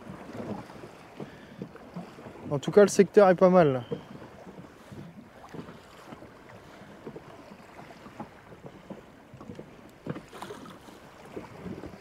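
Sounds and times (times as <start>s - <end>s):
small waves slapping inflatable boat: 0.0s - 12.0s
wind on microphone: 4.1s - 12.0s.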